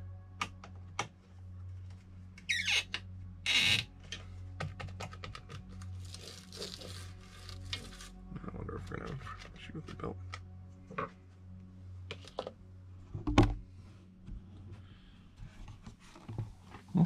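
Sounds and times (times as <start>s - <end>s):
falling squeak: 2.5s - 2.9s
clicks and taps: 4.1s - 5.8s.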